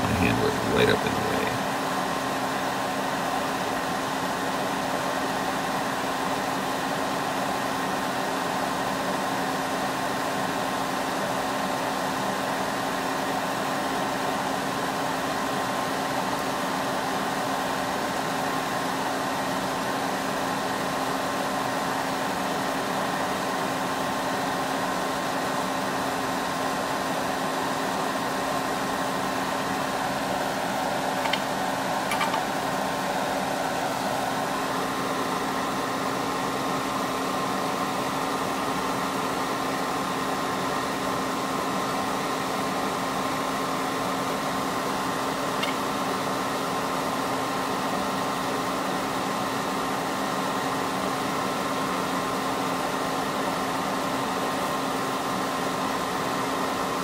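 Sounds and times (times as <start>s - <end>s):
steady mechanical hum: 0.0s - 57.0s.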